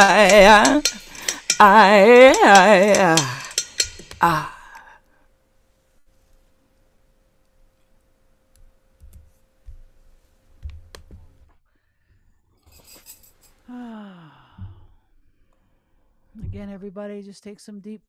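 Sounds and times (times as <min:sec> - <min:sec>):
faint steady hum: 0:00.0 - 0:16.9
soft low thumps: 0:16.4 - 0:16.8.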